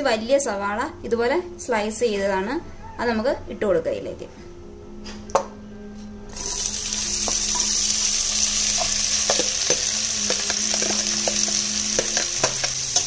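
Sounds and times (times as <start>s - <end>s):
onions sizzling in oil: 6.3s - 13.0s.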